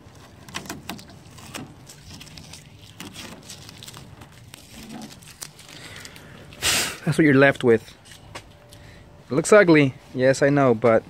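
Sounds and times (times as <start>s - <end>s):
masking tape peeling off plastic: 0.0s - 8.3s.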